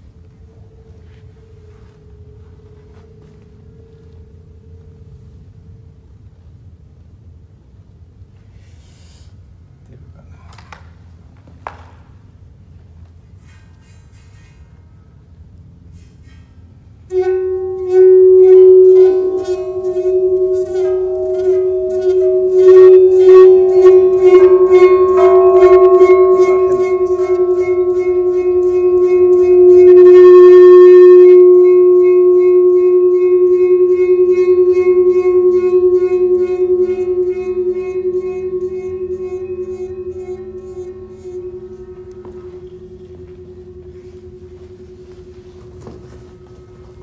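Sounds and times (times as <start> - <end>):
metal plate ringing tone: 0.0 - 6.3, 17.0 - 47.0.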